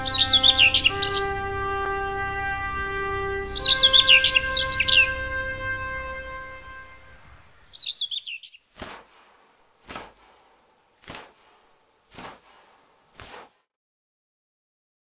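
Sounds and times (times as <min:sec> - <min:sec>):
bird chirping: 0:00.0 - 0:02.2, 0:02.8 - 0:06.0, 0:06.6 - 0:13.3
held musical chord: 0:00.0 - 0:07.7
short strokes: 0:08.7 - 0:13.6.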